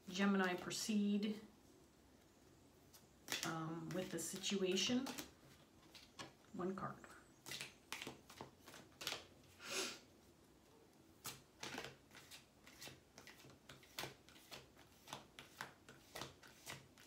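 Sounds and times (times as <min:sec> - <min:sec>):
cards being shuffled: 0:02.9 - 0:06.4, 0:07.4 - 0:09.6, 0:11.2 - 0:17.0.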